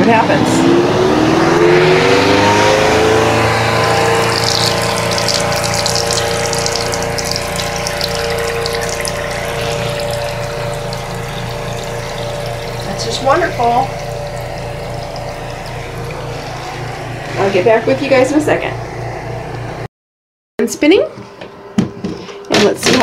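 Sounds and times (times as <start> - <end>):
spin-dryer motor whining: 0.0 - 19.9
water splashing from drain hose: 2.6 - 17.8.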